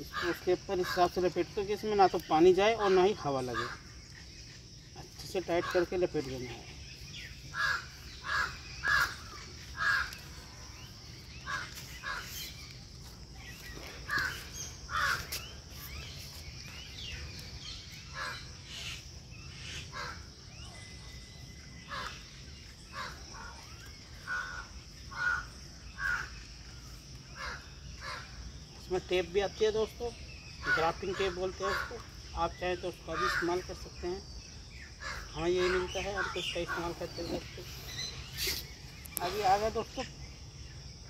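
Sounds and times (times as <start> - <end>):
crows cawing: 0.0 - 1.4, 2.8 - 3.9, 5.4 - 6.4, 7.5 - 12.6, 13.8 - 15.6, 18.1 - 20.4, 21.8 - 28.4, 30.6 - 32.2, 32.9 - 34.0, 35.0 - 37.8.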